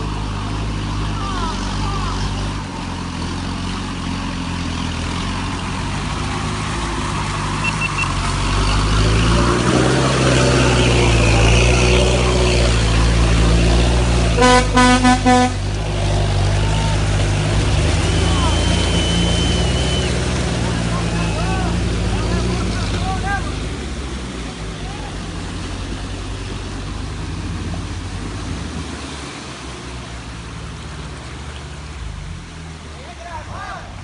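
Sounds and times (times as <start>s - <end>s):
off-road engine under load: 0.0s - 34.0s
vehicle horn beeps: 14.4s - 15.6s.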